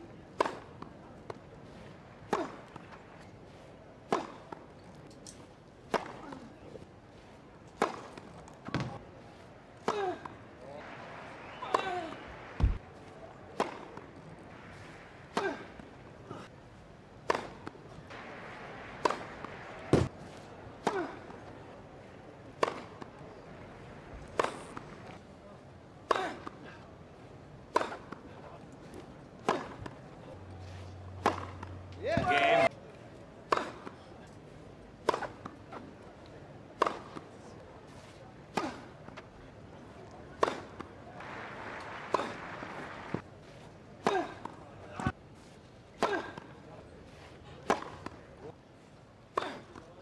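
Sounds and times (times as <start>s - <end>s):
low crowd hum: 0.0s - 50.0s
racket striking tennis ball: 0.3s - 1.4s, 2.2s - 3.0s, 4.0s - 4.6s, 5.9s - 6.5s, 7.7s - 9.0s, 13.5s - 15.9s, 17.2s - 21.4s, 22.6s - 23.1s, 24.2s - 25.0s, 27.7s - 28.2s, 29.4s - 30.0s, 31.1s - 32.7s, 33.5s - 34.0s, 35.0s - 35.8s, 36.8s - 37.3s, 40.4s - 43.2s, 44.0s - 45.2s, 46.0s - 46.5s, 47.6s - 48.2s, 49.3s - 49.9s
low crowd hush: 9.2s - 16.6s, 39.9s - 45.0s.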